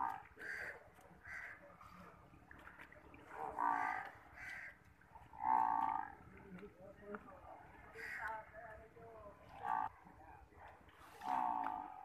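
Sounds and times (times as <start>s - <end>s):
crows cawing: 0.0s - 1.6s, 3.6s - 6.2s, 7.9s - 8.5s.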